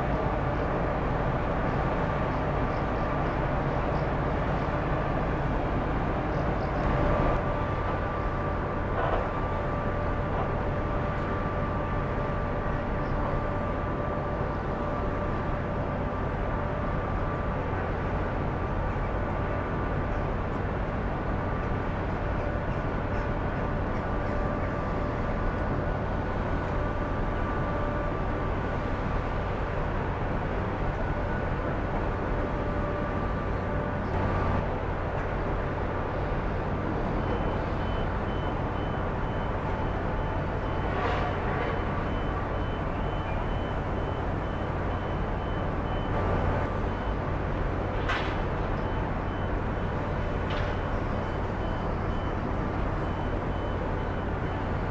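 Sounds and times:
ferry machinery droning: 0:00.0 - 0:54.9
reversing alarm beeping: 0:36.0 - 0:54.9.

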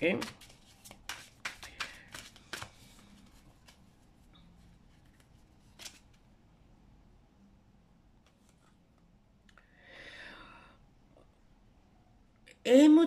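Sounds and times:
cards snapping: 0:00.1 - 0:02.8.

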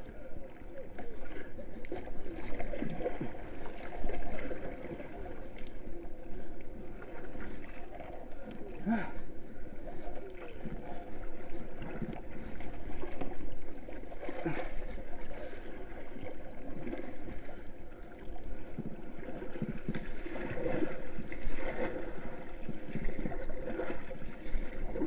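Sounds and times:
water splashing around board: 0:18.5 - 0:25.0.

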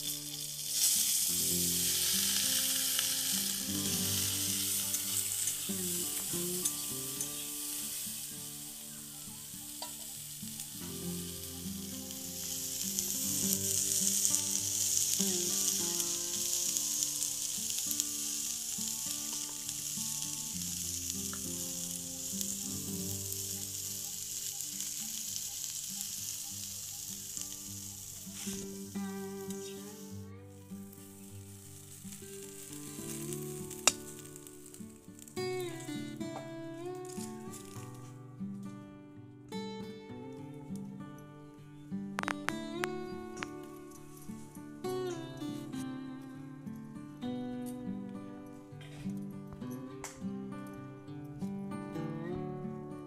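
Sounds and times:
soft background music: 0:00.0 - 0:34.8
beans sizzling in hot oil: 0:00.0 - 0:36.4, 0:37.0 - 0:38.1.

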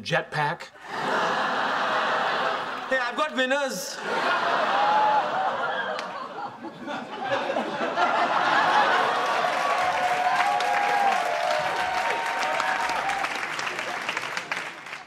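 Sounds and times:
audience laughing and cheering: 0:00.8 - 0:15.0
audience clapping: 0:08.0 - 0:15.0.

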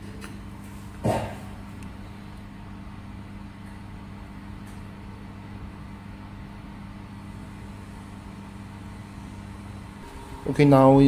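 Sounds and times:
low electrical hum: 0:00.0 - 0:11.0
even low tones: 0:09.8 - 0:11.0.

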